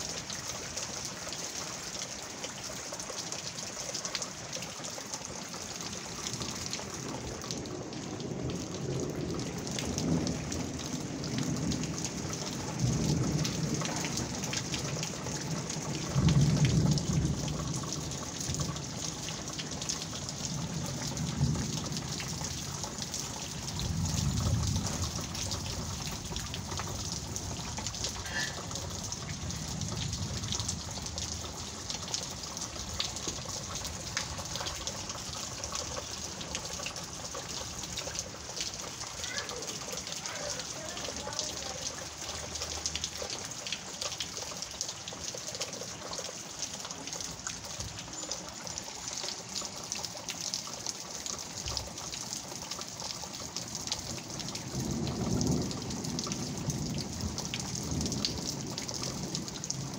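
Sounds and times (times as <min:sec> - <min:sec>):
heavy rain: 0:00.0 - 0:59.9.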